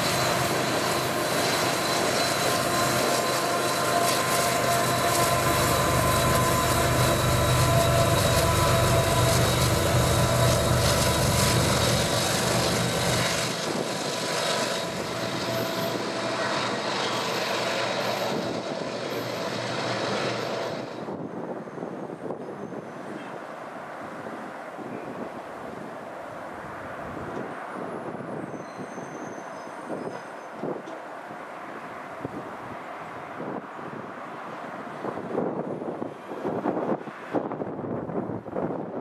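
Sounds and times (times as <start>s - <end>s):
high-pitched rail tones: 0.0s - 13.7s, 14.4s - 19.7s
locomotive low rumble: 0.0s - 14.1s
train rail noise: 0.0s - 39.0s.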